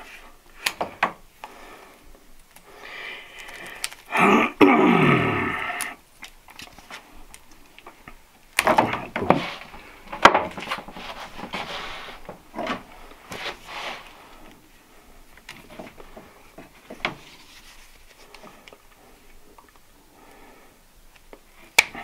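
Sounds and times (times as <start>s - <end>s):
rustling and scraping: 8.6s - 19.4s.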